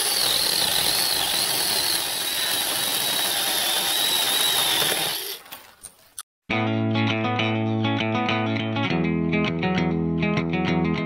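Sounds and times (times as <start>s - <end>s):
electric chainsaw motor whine: 0.0s - 5.4s
chain rasping through wood: 0.0s - 6.1s.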